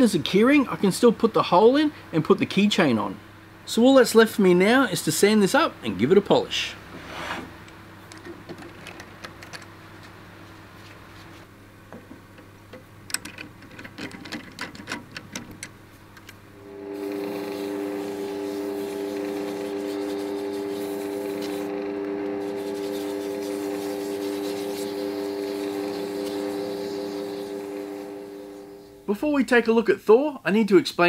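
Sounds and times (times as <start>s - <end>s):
light clicks and knocks: 11.9s - 16.4s
abrasive hissing on spinning resin: 16.6s - 29.1s
lathe humming: 16.6s - 29.1s.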